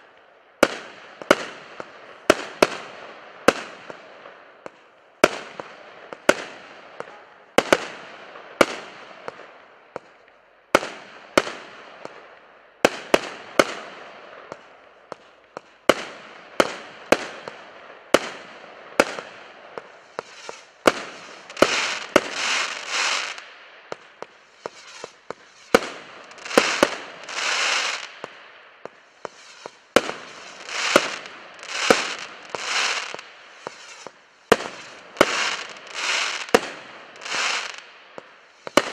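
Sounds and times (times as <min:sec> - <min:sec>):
noisy firework bursts: 0:10.8 - 0:38.9.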